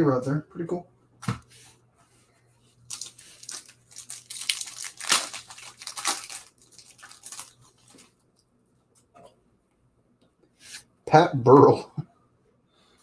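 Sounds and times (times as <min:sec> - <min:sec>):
foil wrapper tearing and crumpling: 0:02.9 - 0:08.1.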